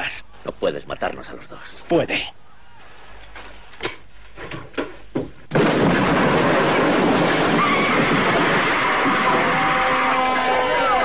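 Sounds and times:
building explosion: 5.5 - 10.1.

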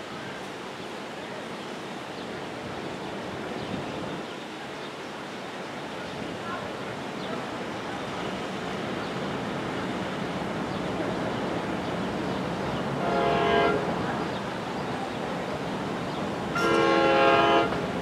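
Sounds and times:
train horn blasts: 13.0 - 14.0, 16.6 - 18.0.

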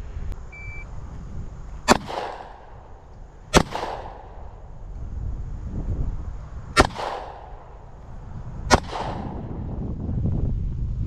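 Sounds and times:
pistol shots echoing: 1.9 - 4.6, 6.8 - 7.8, 8.7 - 9.5.

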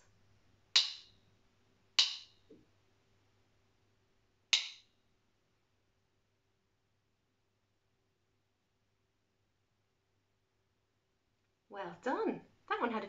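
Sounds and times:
wooden sticks tapped together: 0.8 - 1.1, 2.0 - 2.6, 4.5 - 4.9.

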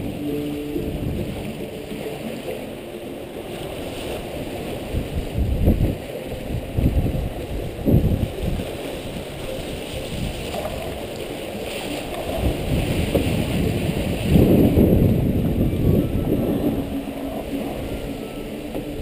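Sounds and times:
wind buffeting microphone: 0.0 - 2.6, 3.4 - 19.0
water rushing along hulls: 0.0 - 19.0.

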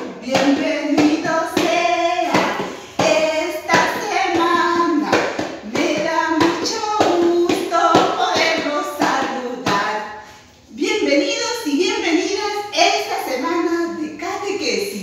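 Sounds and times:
woman singing: 0.0 - 10.1.

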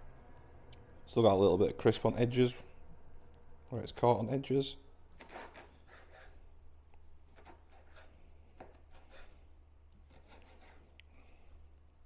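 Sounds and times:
knife cutting on plastic board: 5.2 - 6.4, 7.2 - 9.4, 10.0 - 10.9.

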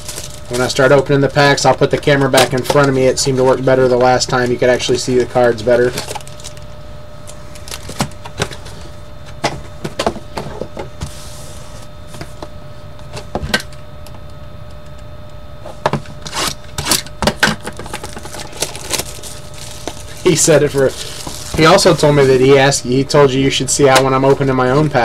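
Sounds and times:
card packs being handled: 0.0 - 8.9, 17.6 - 22.7
faint steady hum: 0.0 - 25.0
cardboard opened: 17.8 - 22.4.

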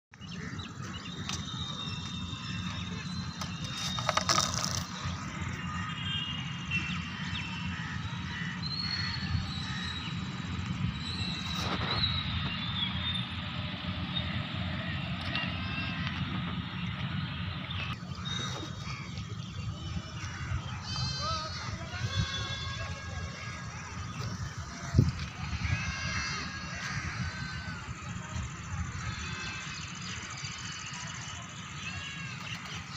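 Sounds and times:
low outdoor rumble: 0.1 - 32.9
plastic propeller clattering: 3.4 - 5.0.

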